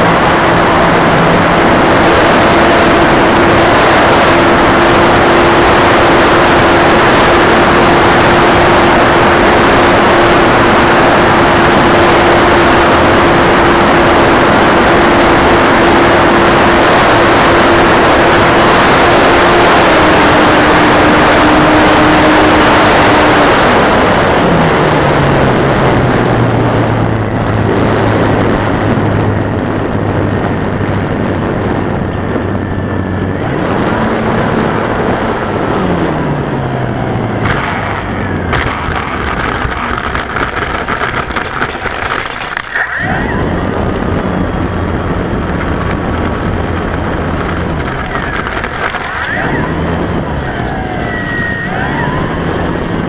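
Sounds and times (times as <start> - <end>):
electric motor and propeller hum: 0.0 - 53.0
wind rush: 0.0 - 53.0
plane rattling over rough grass: 37.4 - 53.0.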